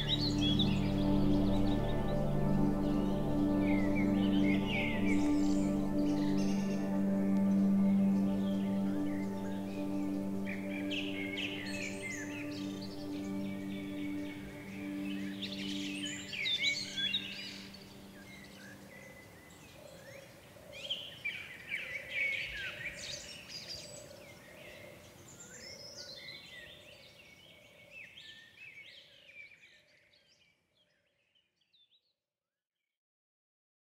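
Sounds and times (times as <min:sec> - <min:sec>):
birds chirping and warbling: 0:00.0 - 0:32.0.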